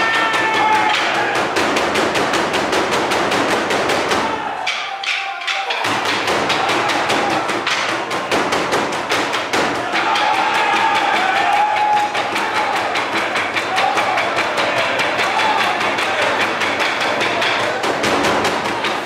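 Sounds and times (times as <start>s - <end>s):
wooden drums beaten with sticks: 0.0s - 19.0s.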